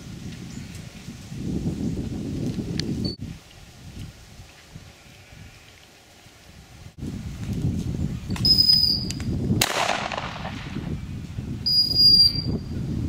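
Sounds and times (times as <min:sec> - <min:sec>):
dog whistle blasts: 0:08.4 - 0:09.1, 0:11.6 - 0:12.6
gunshot with echo: 0:09.6 - 0:10.9.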